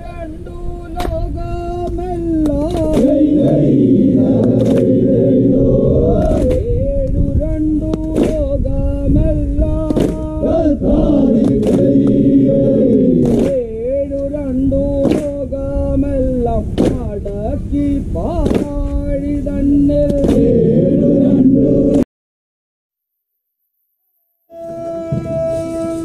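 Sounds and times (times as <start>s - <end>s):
men singing call-and-response chant: 0.0s - 22.1s
hand claps: 1.0s - 1.2s, 1.8s - 3.6s, 4.4s - 5.0s, 6.2s - 6.7s, 7.9s - 8.6s, 9.8s - 10.4s, 11.4s - 12.2s, 13.2s - 13.7s, 15.0s - 15.4s, 16.8s - 17.1s, 18.4s - 18.8s, 20.1s - 20.5s.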